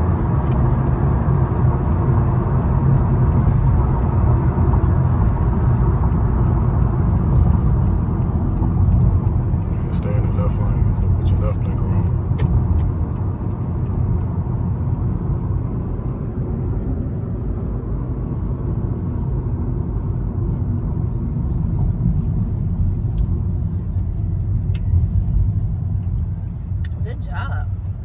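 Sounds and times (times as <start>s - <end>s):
truck engine and road noise: 0.0s - 28.0s.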